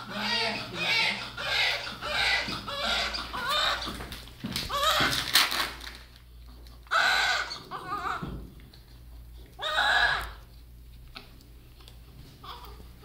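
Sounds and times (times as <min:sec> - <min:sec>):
newborn baby crying: 0:00.0 - 0:03.9, 0:04.7 - 0:05.2, 0:06.9 - 0:08.2.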